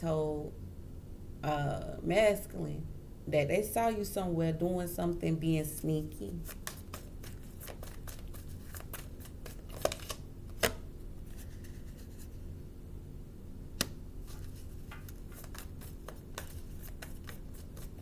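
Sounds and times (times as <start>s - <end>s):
faint low hum: 0.0s - 18.0s
cards being shuffled: 6.4s - 12.4s, 13.8s - 18.0s.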